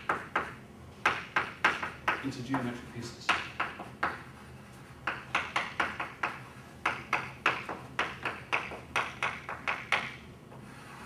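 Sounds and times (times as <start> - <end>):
chalk tapping on blackboard: 0.0 - 11.0.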